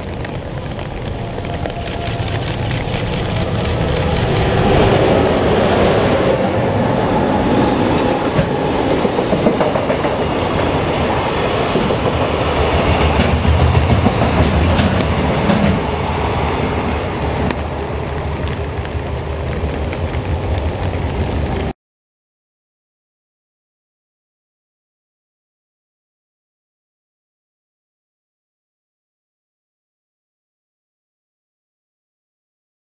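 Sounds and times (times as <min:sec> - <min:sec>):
electric locomotive passing: 0:00.0 - 0:21.7
freight cars rumbling and clattering: 0:00.0 - 0:21.7.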